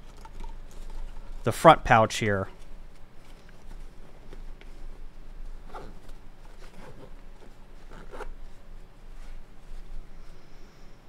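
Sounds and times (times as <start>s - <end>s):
nylon fabric rustling: 2.6s - 10.4s
zipper being pulled: 6.6s - 8.5s.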